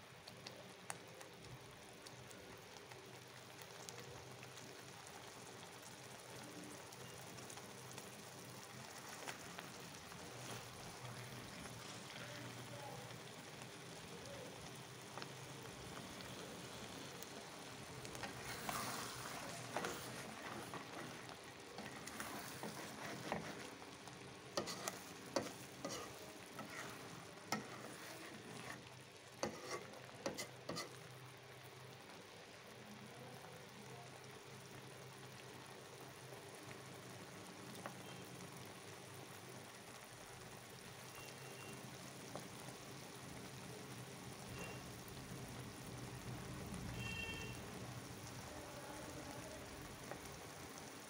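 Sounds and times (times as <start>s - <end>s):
food sizzling in a pan: 0.0s - 51.0s
metal spatula scraping pan: 18.1s - 23.8s, 24.6s - 31.0s.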